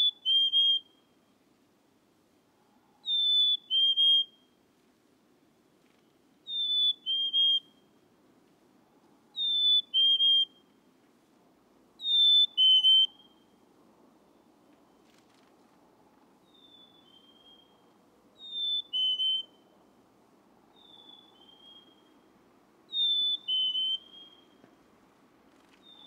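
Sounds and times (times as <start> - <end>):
chickadee whistled song: 0.0 - 1.2, 3.0 - 4.6, 6.4 - 7.9, 9.4 - 10.7, 12.0 - 13.5, 16.4 - 17.8, 18.4 - 19.7, 20.7 - 22.2, 22.9 - 24.6.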